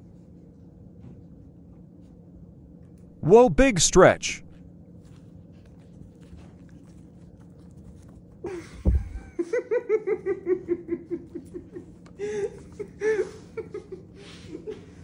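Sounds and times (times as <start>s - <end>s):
dull thump: 8.8s - 9.2s.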